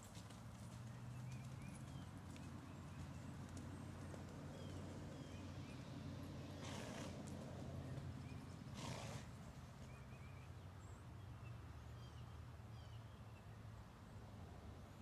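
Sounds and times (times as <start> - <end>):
small birds chirping: 0.8 - 6.7.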